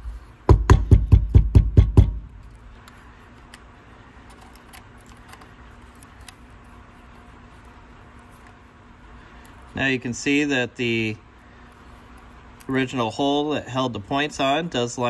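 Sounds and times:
sharp metal knocks on workbench: 0.5 - 2.2.

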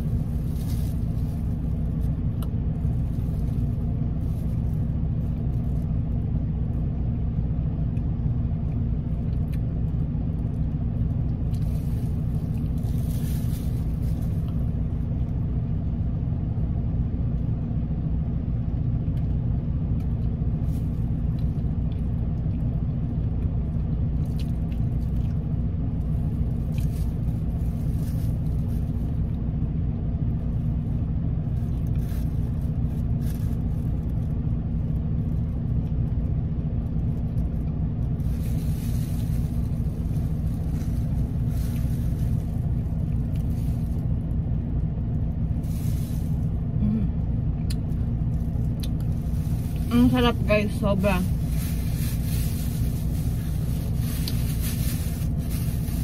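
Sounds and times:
faint rustles: 0.0 - 6.2, 10.3 - 15.6, 26.0 - 29.6, 37.0 - 56.0
car engine idling: 0.0 - 56.0.

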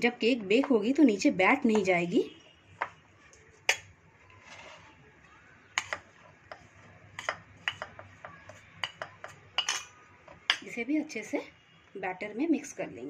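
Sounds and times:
metal spoon scraping ceramic bowl: 3.7 - 5.0, 5.8 - 10.6.

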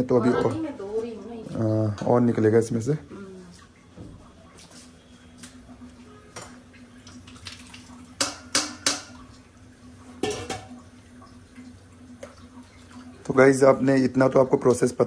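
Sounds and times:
steel bowls and sieve clinking: 10.2 - 10.8.

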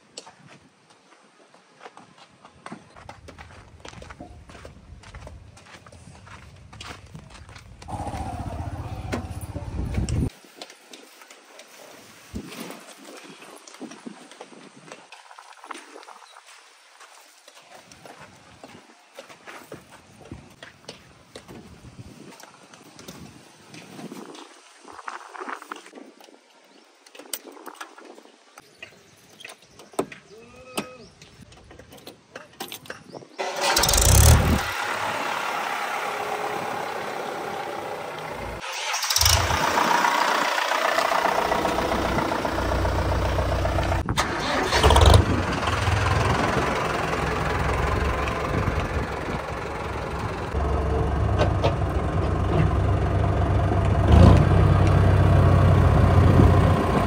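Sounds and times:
diesel tractor engine: 7.8 - 10.3, 33.4 - 57.0.

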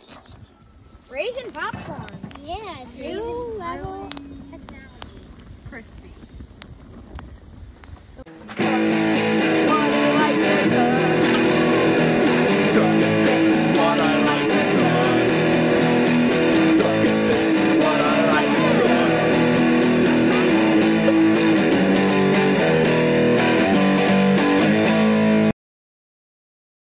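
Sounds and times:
strummed guitar music: 8.3 - 25.5.

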